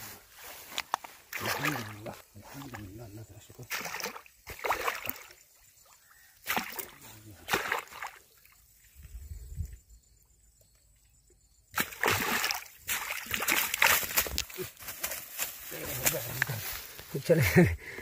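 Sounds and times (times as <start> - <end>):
fish splashing in water: 1.3 - 2.1, 3.6 - 5.4, 6.4 - 8.4, 11.8 - 14.6.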